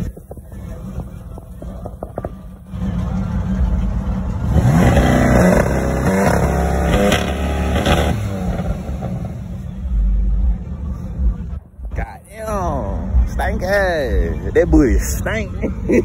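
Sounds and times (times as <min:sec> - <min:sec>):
car engine revving hard: 0:04.5 - 0:09.4.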